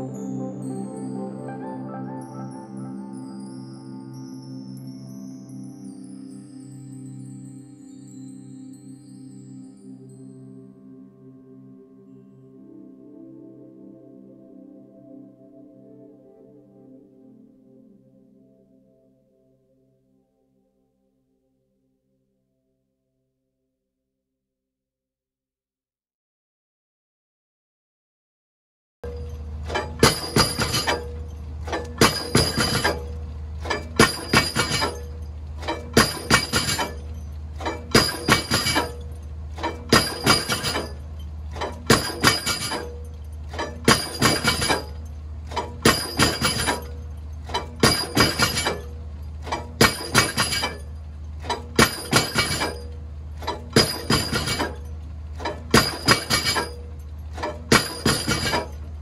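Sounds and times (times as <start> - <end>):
pile-driving hammer clanking: 29.1 - 59.0.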